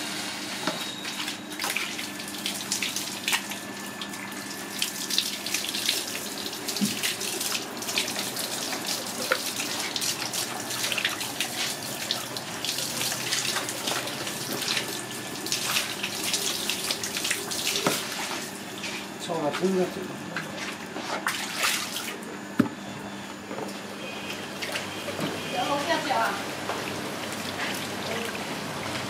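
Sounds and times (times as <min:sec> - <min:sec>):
water running from hose: 0:01.2 - 0:20.0, 0:25.5 - 0:29.0
water splashing in plastic basin: 0:21.2 - 0:22.2.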